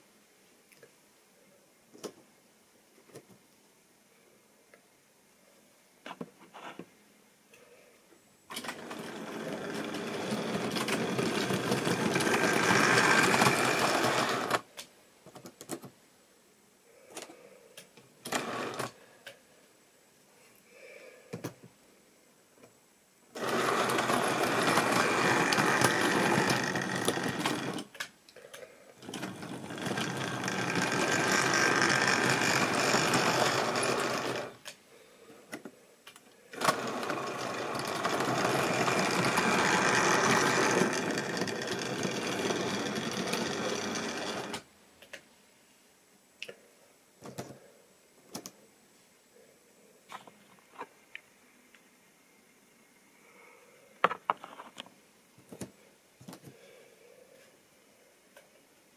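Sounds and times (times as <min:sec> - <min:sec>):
model train motor whirring: 0:08.5 - 0:14.7, 0:18.3 - 0:19.0, 0:23.3 - 0:27.9, 0:29.0 - 0:34.7, 0:36.5 - 0:44.6.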